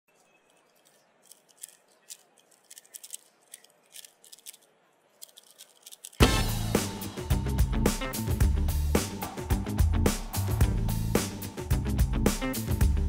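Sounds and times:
plastic puzzle cube clicking: 0.5s - 6.2s.

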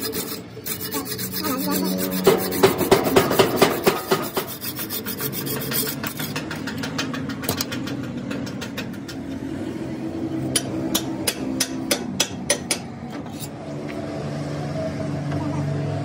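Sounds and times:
hand tool rasping on steel: 0.0s - 6.6s.

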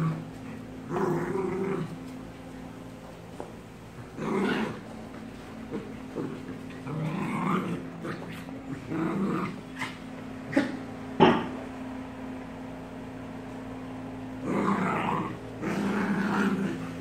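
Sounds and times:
dogs growling: 0.0s - 2.4s, 3.9s - 11.6s, 14.4s - 17.0s.

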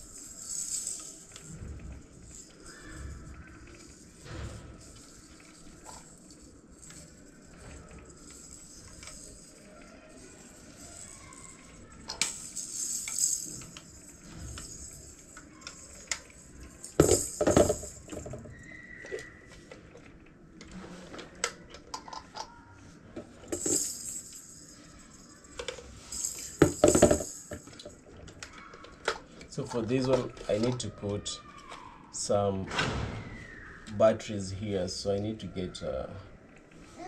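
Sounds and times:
parts clicking and clattering: 0.0s - 31.8s
clattering knocks: 26.6s - 28.0s.

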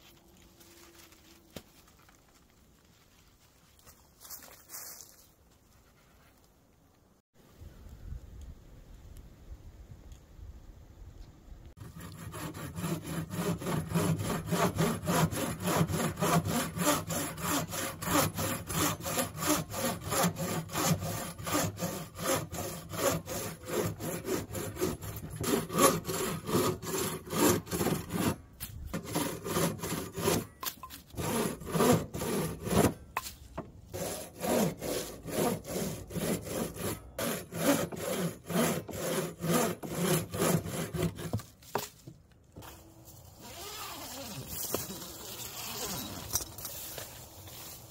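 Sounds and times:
bow saw cutting branch: 11.8s - 47.8s.

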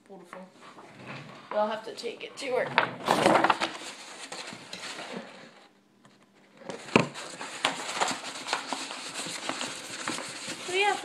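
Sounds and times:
paper rustling and crackling: 3.0s - 5.6s, 6.6s - 11.0s.

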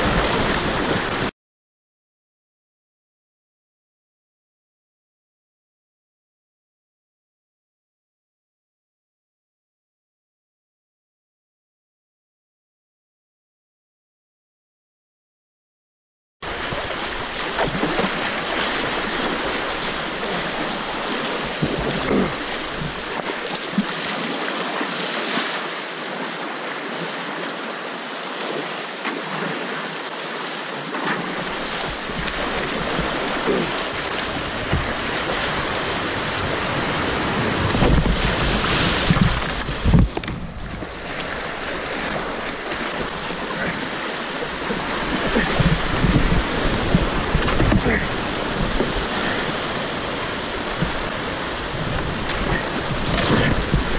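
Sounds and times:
water splashes: 0.0s - 1.3s, 16.4s - 53.9s
river rapids rushing: 16.5s - 40.0s, 40.9s - 53.9s.

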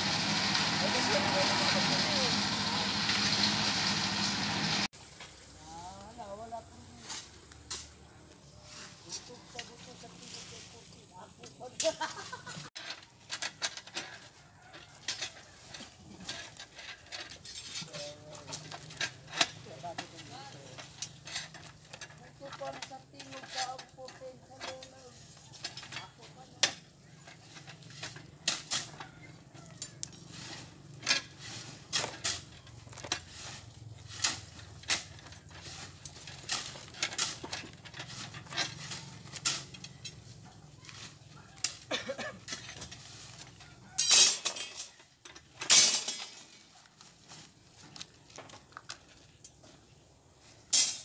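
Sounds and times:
metal rattles: 34.0s - 40.5s
rebar clinking against steel pins: 44.0s - 46.5s.

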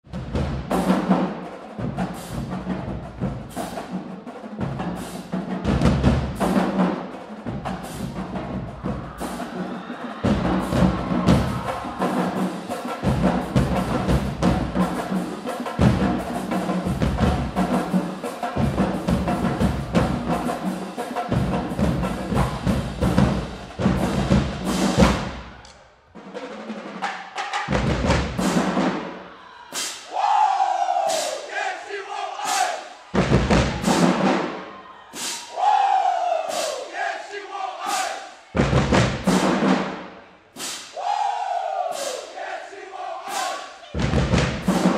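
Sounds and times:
snare drum strikes: 32.3s - 35.5s, 37.8s - 41.0s, 43.2s - 44.9s
bass drums booming: 33.2s - 34.1s.

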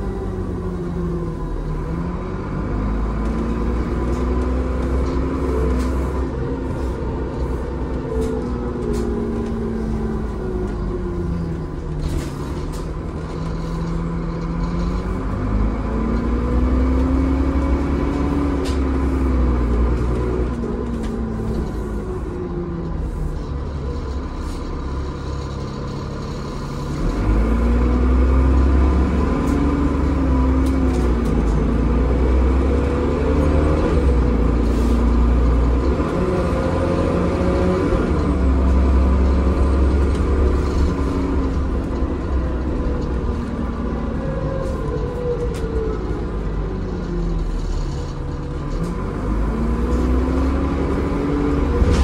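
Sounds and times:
bus engine accelerating: 0.0s - 52.0s
low rumble: 37.9s - 52.0s.

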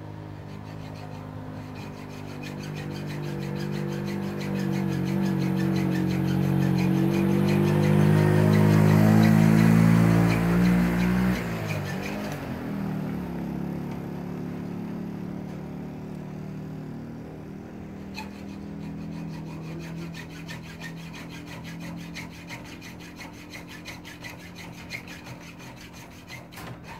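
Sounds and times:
engine running: 0.0s - 26.0s
hand tool scraping: 0.3s - 12.8s, 18.0s - 26.9s.

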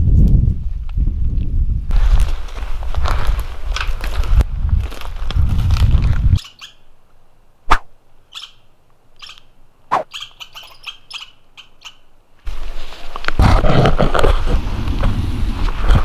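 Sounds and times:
footsteps on forest trail: 1.9s - 6.5s
short high bird chirps: 6.4s - 6.9s, 8.3s - 12.1s.

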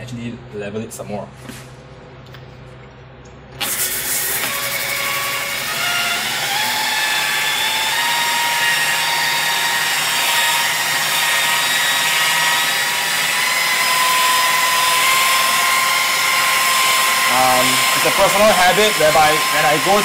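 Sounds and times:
rotary polisher motor whine: 3.7s - 20.0s.

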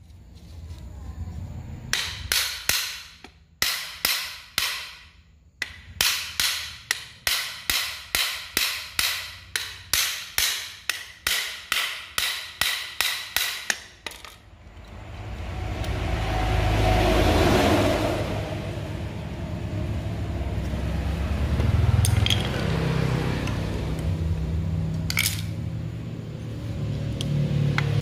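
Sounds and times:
hammer tapping on metal: 1.9s - 13.9s
rising rumble: 14.5s - 28.0s.

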